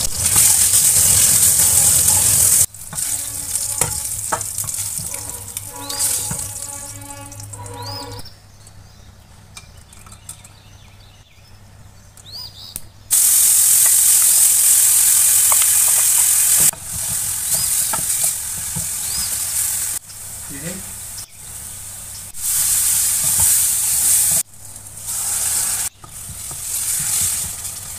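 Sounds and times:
onions sizzling in hot oil: 0.0s - 8.2s, 13.1s - 27.9s
wooden spatula scraping and clicking: 0.0s - 8.2s.

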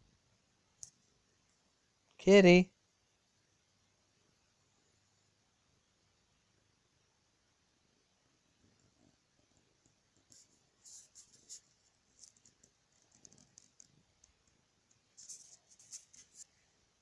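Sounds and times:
hand stroking cat fur crackling: 10.2s - 14.4s, 15.0s - 16.6s.

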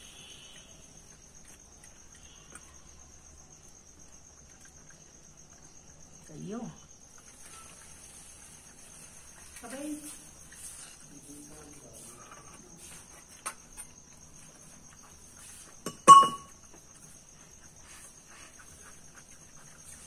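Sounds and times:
crickets chirring: 0.0s - 20.0s
steel dishes and spoons clinking: 15.9s - 16.5s.

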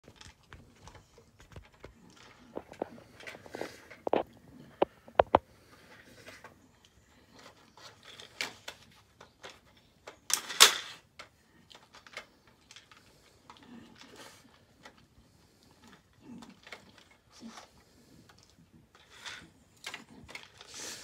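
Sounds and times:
plastic clatter: 0.0s - 5.4s, 7.3s - 15.1s, 18.3s - 21.0s.

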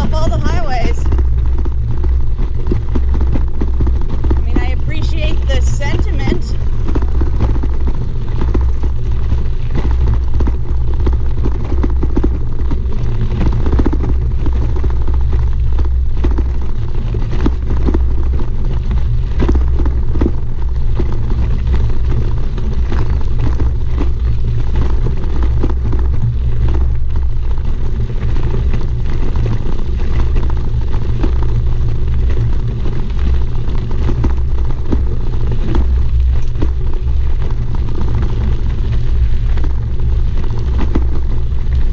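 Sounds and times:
tyres crunching on gravel: 0.0s - 41.9s
wind buffeting microphone: 0.0s - 41.9s.

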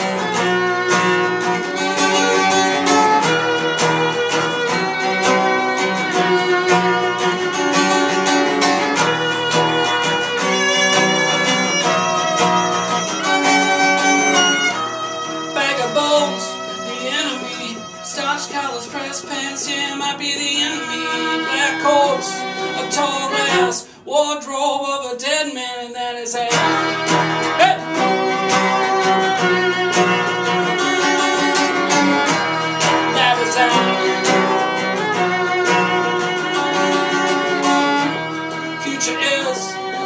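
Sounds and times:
violin: 0.0s - 24.0s, 26.5s - 40.0s
strummed acoustic guitar: 0.0s - 40.0s
man singing: 15.5s - 26.9s, 27.5s - 28.1s, 33.1s - 34.5s, 38.7s - 40.0s.

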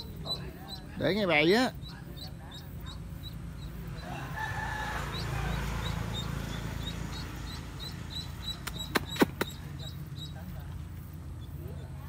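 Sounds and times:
rooster crowing: 4.0s - 6.4s.

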